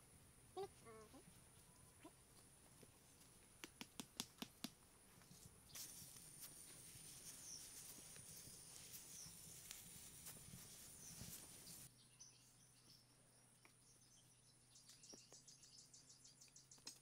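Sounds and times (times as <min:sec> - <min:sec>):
faint high hiss: 0:00.0 - 0:13.4
faint outdoor background: 0:00.0 - 0:17.0.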